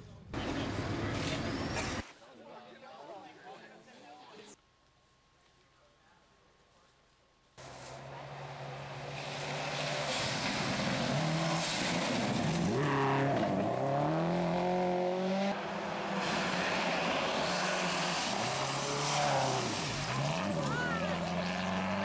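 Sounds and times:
rally car engine revving: 8.0s - 22.0s.

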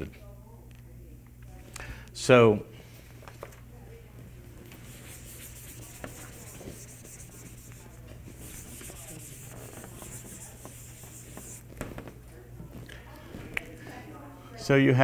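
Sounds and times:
eraser rubbing on whiteboard: 4.7s - 11.7s.

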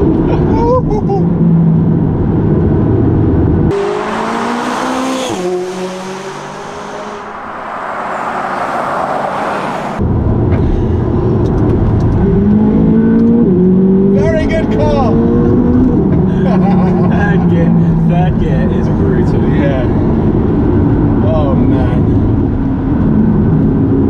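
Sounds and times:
car engine accelerating: 1.0s - 24.0s
car passing by: 3.8s - 10.0s.

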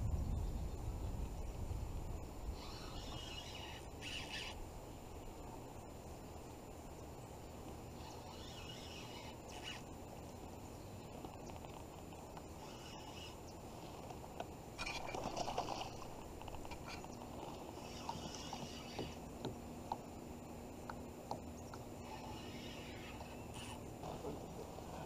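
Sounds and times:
steady low hiss: 0.0s - 25.0s
faint bird calls: 2.5s - 5.6s, 7.9s - 10.0s, 12.5s - 14.0s, 14.8s - 19.3s, 21.3s - 25.0s.

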